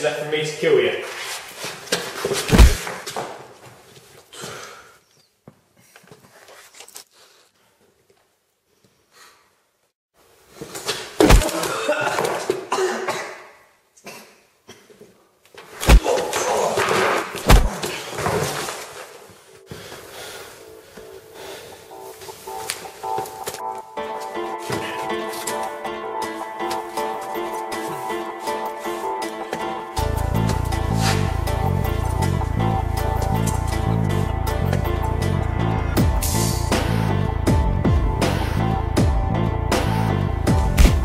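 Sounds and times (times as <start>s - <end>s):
rough scuffling: 1.1s - 4.1s, 10.7s - 12.6s, 15.6s - 19.4s, 22.2s - 25.8s
heavy thuds: 2.4s - 3.1s, 17.4s - 18.6s, 40.6s - 41.0s.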